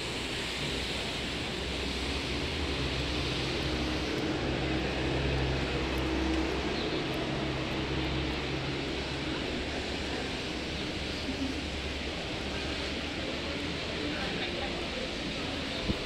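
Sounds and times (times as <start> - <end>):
steady hiss: 0.0 - 6.0.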